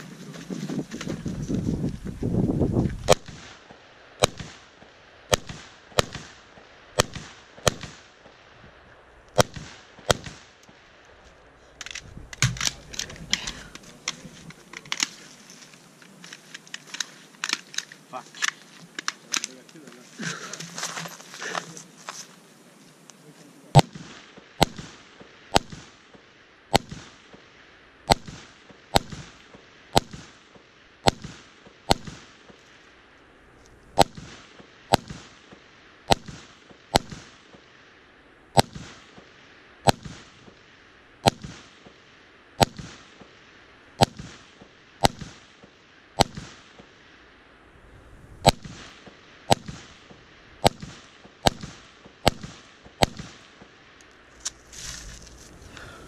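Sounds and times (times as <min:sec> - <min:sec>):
rifle shots with echo: 0:03.0 - 0:08.5, 0:09.4 - 0:10.8, 0:11.8 - 0:14.3, 0:23.7 - 0:27.5, 0:28.1 - 0:32.6, 0:34.0 - 0:37.7, 0:38.6 - 0:43.4, 0:44.0 - 0:47.0, 0:48.4 - 0:53.8.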